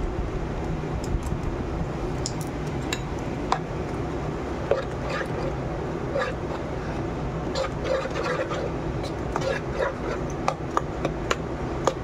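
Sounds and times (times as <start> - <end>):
low background hum: 0.0 - 12.0
spoon stirring thick batter: 4.5 - 12.0.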